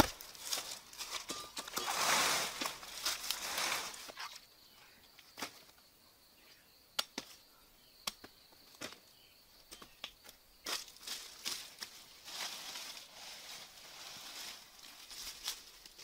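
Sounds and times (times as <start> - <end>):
bare footsteps on dry leaves: 0.0 - 4.2, 10.6 - 16.0
high insect trill: 0.1 - 16.0.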